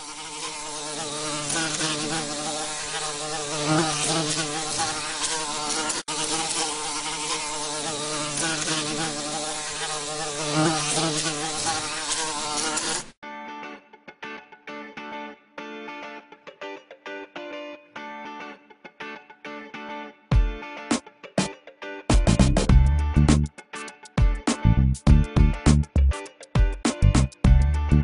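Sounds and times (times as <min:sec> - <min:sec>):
swarm of insects buzzing: 0:00.0 - 0:13.2.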